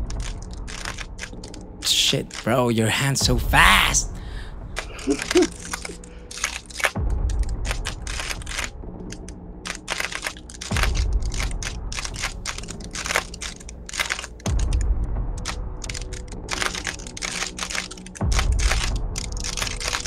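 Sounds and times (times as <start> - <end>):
plastic puzzle cube clicking: 0.2 - 1.6, 5.2 - 7.0, 7.6 - 14.8, 15.4 - 20.0.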